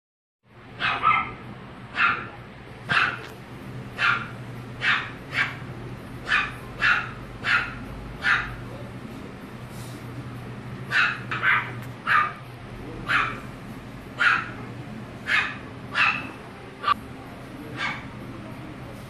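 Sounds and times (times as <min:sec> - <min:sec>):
puppy yapping: 0:00.8 - 0:03.4, 0:04.0 - 0:08.6, 0:10.9 - 0:13.5, 0:14.2 - 0:17.0, 0:17.8 - 0:18.1.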